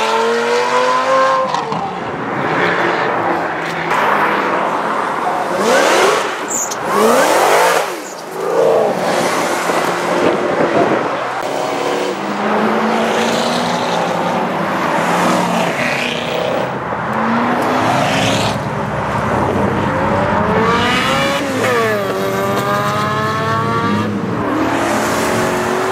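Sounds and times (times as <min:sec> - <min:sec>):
sports car engines revving: 0:00.0 - 0:25.9.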